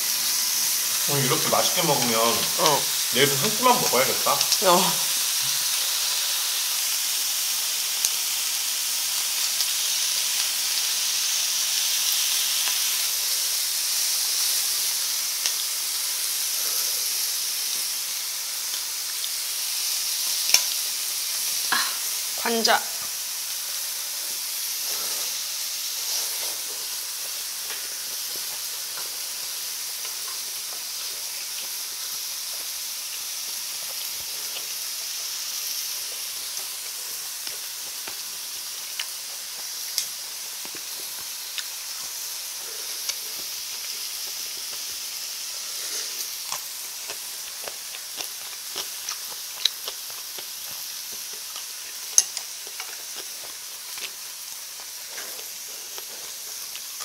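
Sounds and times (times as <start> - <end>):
food sizzling on grill pan: 0.0 - 57.0
chopsticks clicking on dishes: 51.9 - 53.3.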